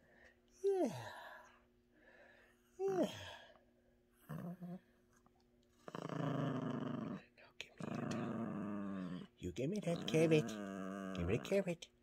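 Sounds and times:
dog growling in play: 4.2s - 4.8s, 5.8s - 11.7s.

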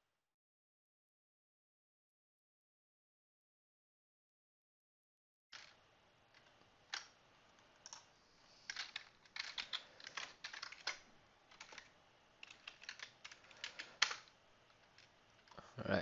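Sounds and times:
computer keyboard typing: 7.8s - 8.0s, 8.7s - 14.3s.

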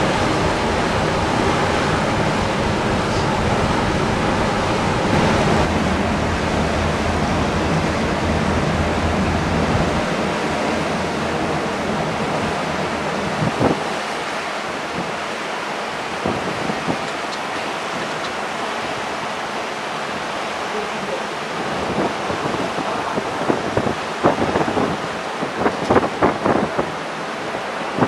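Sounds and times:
low steady hum: 0.0s - 13.7s
wind on microphone: 0.0s - 19.1s, 21.5s - 28.0s
sea and ship's wake rushing: 0.0s - 28.0s.

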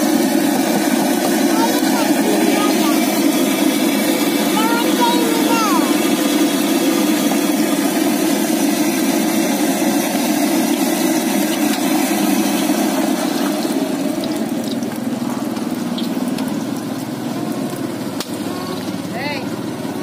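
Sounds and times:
food sizzling in oil: 9.8s - 18.2s.

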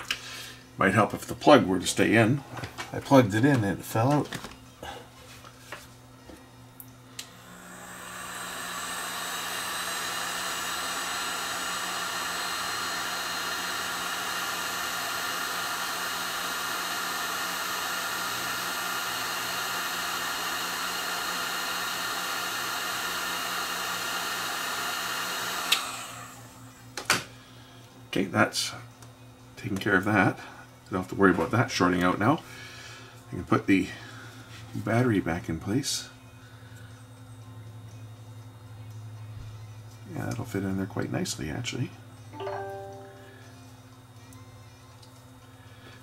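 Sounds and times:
heat gun blowing: 7.2s - 26.5s.

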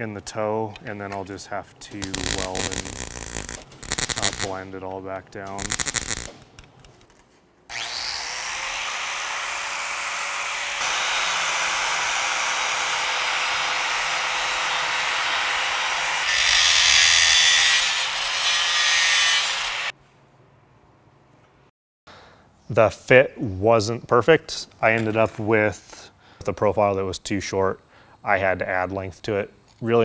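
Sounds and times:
angle grinder grinding steel: 2.0s - 4.6s, 5.6s - 6.3s, 7.7s - 19.9s.

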